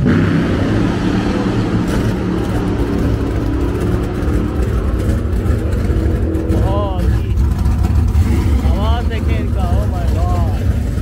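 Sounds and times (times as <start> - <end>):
race car engines rumbling: 0.0 - 11.0.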